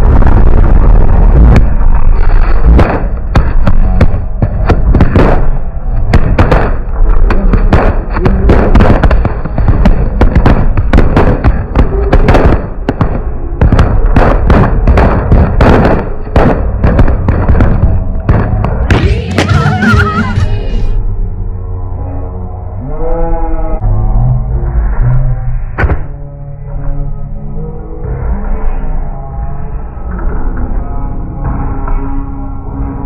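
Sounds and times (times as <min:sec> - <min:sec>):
firework bangs and crackles: 0:00.0 - 0:20.9
wavering pitched sound: 0:18.9 - 0:33.0.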